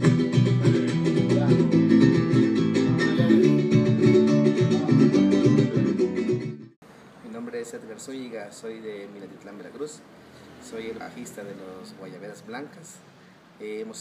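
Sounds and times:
strummed and plucked string instruments: 0.0 - 6.8.

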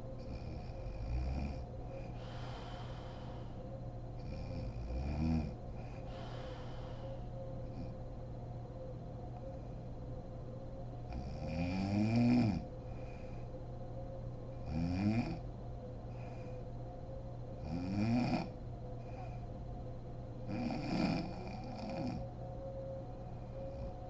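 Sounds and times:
woman snoring: 0.3 - 3.4, 4.2 - 7.0, 11.1 - 12.7, 14.6 - 15.4, 17.6 - 18.6, 20.5 - 22.2.

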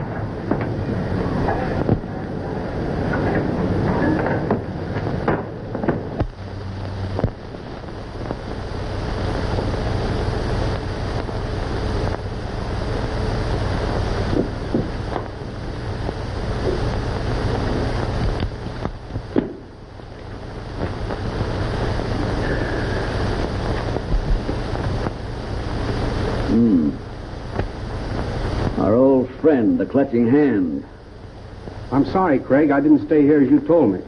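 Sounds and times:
film soundtrack hiss and hum: 0.0 - 34.0
clicks and pops: 4.2 - 8.5.

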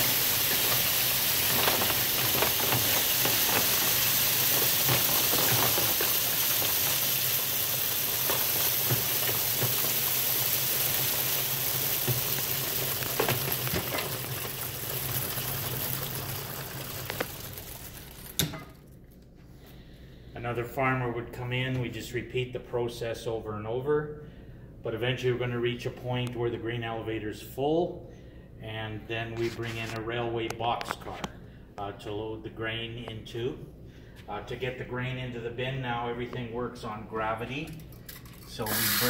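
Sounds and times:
grain pouring hiss: 0.0 - 18.4, 38.6 - 39.0.

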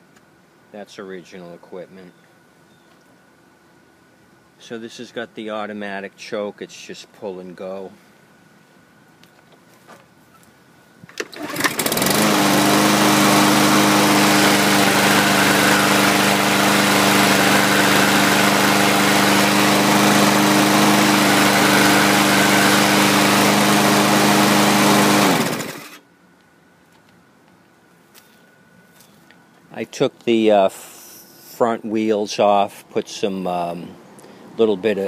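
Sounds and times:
lawn mower engine running: 11.1 - 26.0
recoil starter pull: 11.1 - 26.0.

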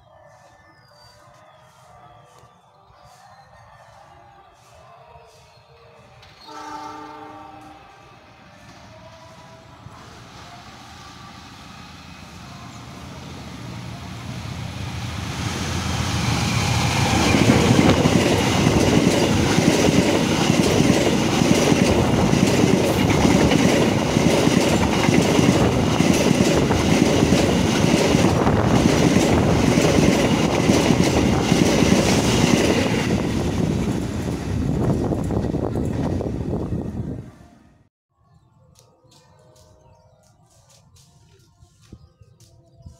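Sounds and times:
train wheels on rails: 0.2 - 36.9.

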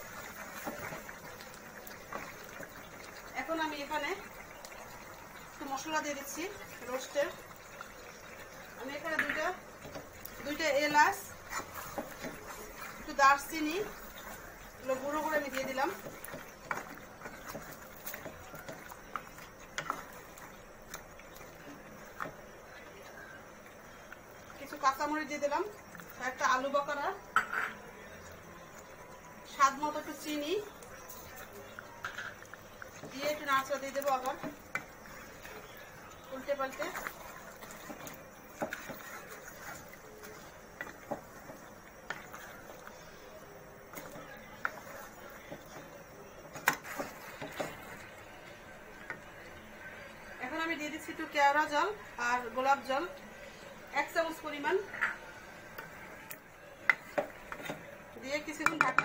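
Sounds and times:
faint steady background noise: 0.0 - 59.0
taps on metal cooking pot: 58.6 - 59.0.

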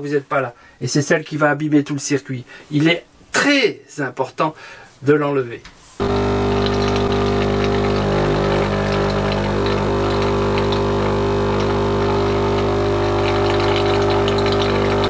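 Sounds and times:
air and water spitting: 6.0 - 15.0
espresso machine pump buzzing: 6.0 - 15.0.

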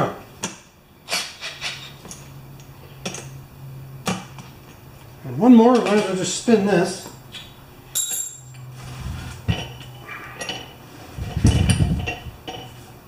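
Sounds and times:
metal nut clinking and rattling: 7.3 - 8.7.

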